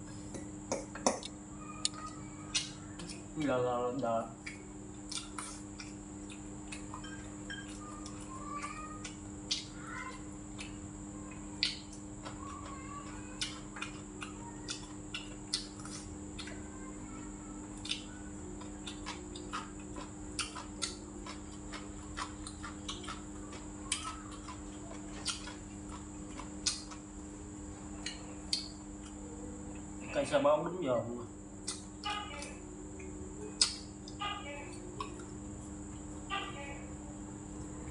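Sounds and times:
steady low hum: 0.0s - 37.9s
chewing and mouth sounds: 4.4s - 16.8s, 17.6s - 30.0s, 31.6s - 36.2s.

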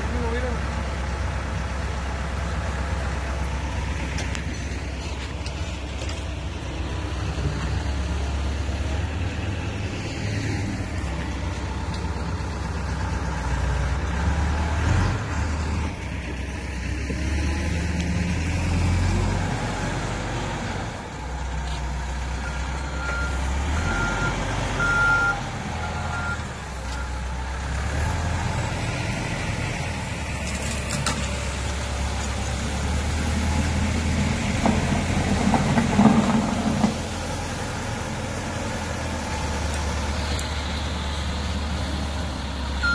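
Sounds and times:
diesel engine running under load: 0.0s - 42.9s
reversing alarm beeps: 22.4s - 27.2s.

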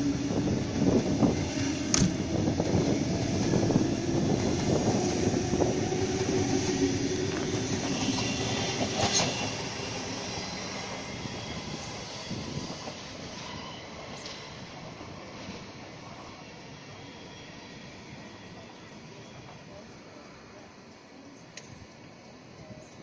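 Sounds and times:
wheels rumbling on rail: 0.0s - 23.0s
brief wheel squeals: 7.4s - 14.6s, 16.3s - 19.8s.

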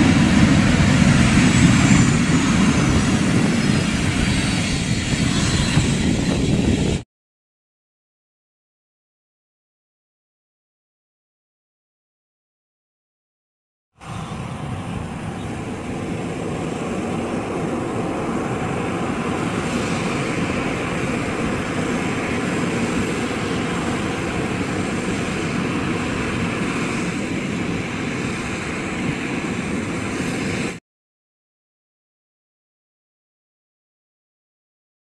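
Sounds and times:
jet engines taxiing: 0.0s - 7.0s, 14.0s - 30.8s.

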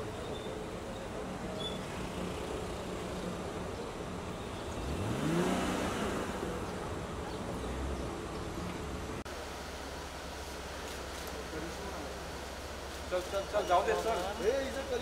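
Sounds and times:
street traffic noise: 0.0s - 15.0s
car engine revving: 4.7s - 9.2s.

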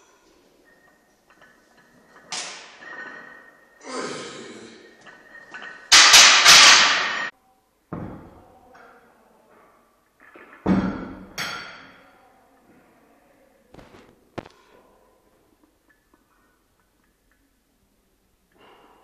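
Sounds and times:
barbell thuds: 5.5s - 7.3s.

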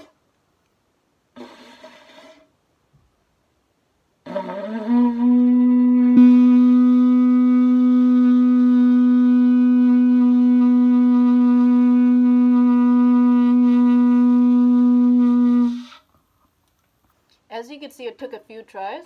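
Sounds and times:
shofar held note: 4.2s - 16.0s.

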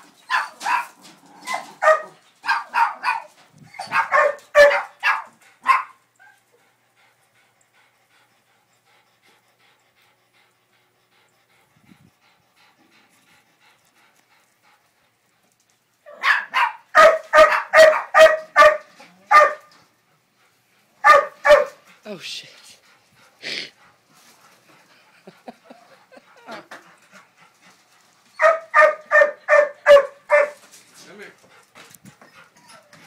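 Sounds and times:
dog barking: 0.3s - 1.0s, 1.8s - 6.0s, 16.1s - 19.7s, 21.0s - 21.8s, 28.4s - 30.6s.

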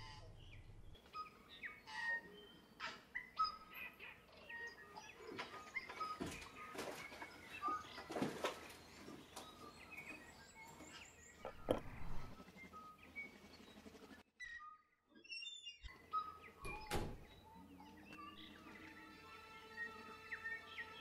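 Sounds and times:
birds chirping and whistling: 0.0s - 21.0s
soft knocks: 11.4s - 12.3s.

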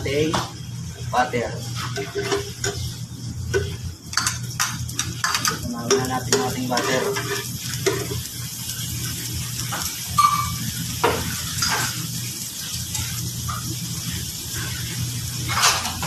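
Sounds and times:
butter sizzling in frying pan: 0.0s - 16.0s
metal spatula scraping pan: 1.8s - 3.0s, 5.0s - 8.3s.

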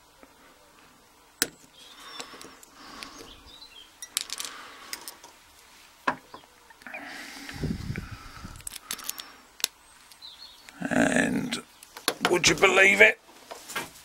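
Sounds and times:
metal parts set on plastic tray: 4.1s - 5.4s
small metal clicks: 8.6s - 10.3s.

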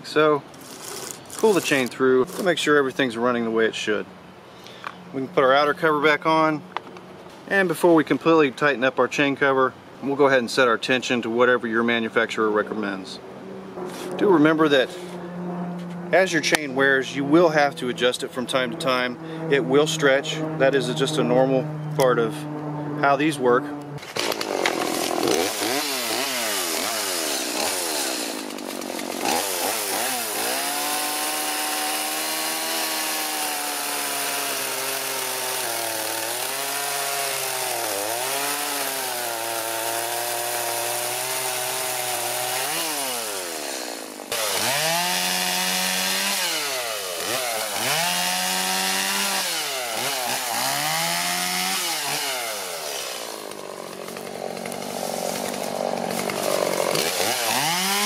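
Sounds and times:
chainsaw cutting log: 0.5s - 2.6s, 24.0s - 58.0s.

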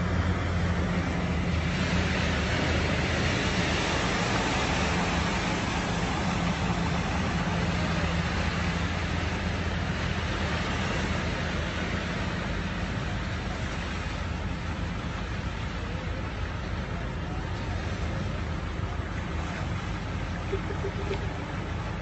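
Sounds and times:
vehicle engine hum: 0.0s - 22.0s.

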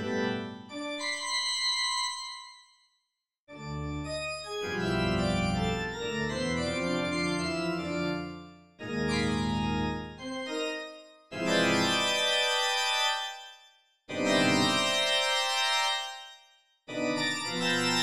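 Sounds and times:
organ playing atonal chords: 3.6s - 10.8s.

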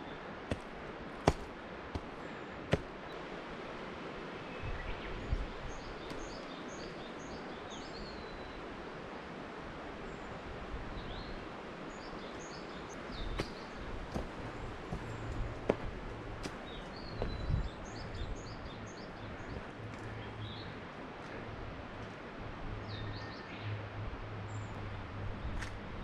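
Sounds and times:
small birds chirping: 4.5s - 8.6s, 11.0s - 21.4s.

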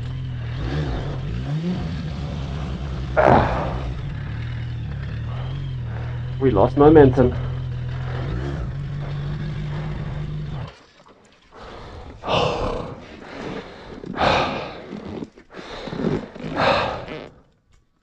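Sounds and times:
motorcycle engine idling: 0.0s - 12.3s
heavy straining breaths or grunts: 3.1s - 4.5s, 5.2s - 10.7s, 11.4s - 17.6s.

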